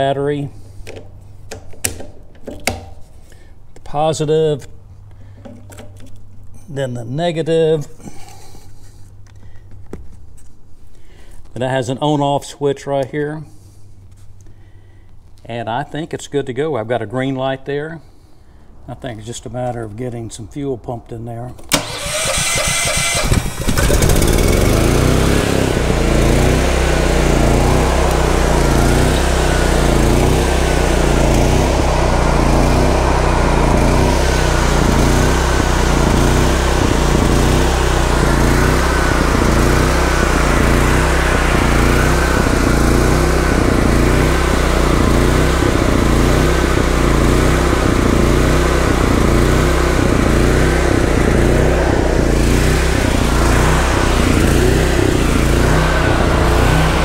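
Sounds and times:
generator engine cranking: 0:21.6 - 0:57.0
generator engine running: 0:21.7 - 0:57.0.

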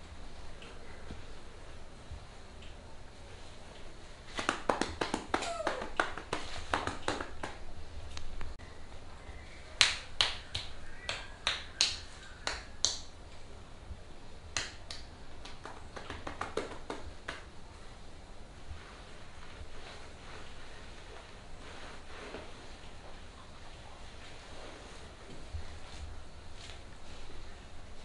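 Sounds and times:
hands slapping skin: 0:04.3 - 0:07.6, 0:09.8 - 0:13.1, 0:14.6 - 0:17.5.

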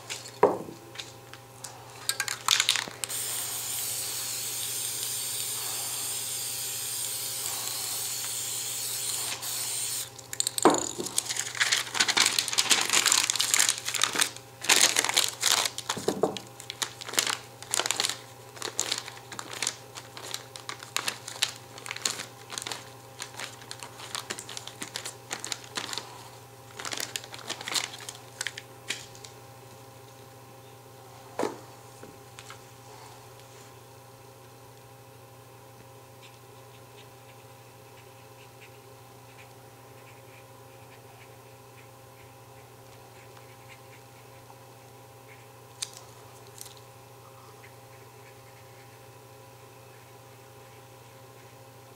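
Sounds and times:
crumpled paper crinkling: 0:02.2 - 0:03.2, 0:10.2 - 0:29.4, 0:45.8 - 0:46.8
spray paint can hissing: 0:03.1 - 0:10.1.

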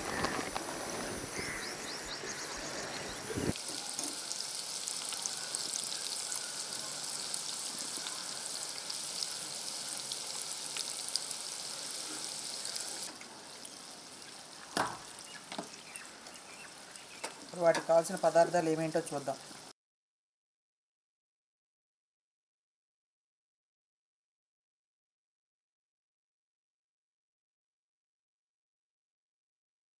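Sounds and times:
chicken deep-frying in oil: 0:03.4 - 0:19.8.

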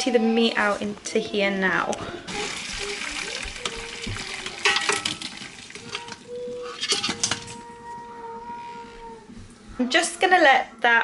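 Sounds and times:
metal utensil scraping a pot: 0:04.5 - 0:07.6.

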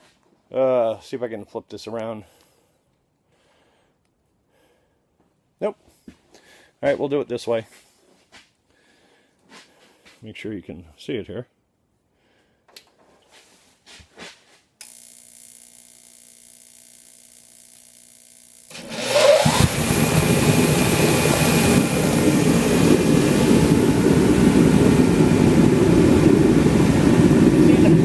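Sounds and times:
forced-air heater roaring: 0:18.6 - 0:28.0.

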